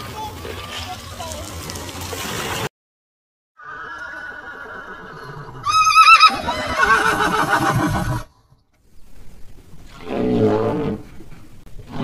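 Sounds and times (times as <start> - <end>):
horse whinnying: 3.6 - 8.3.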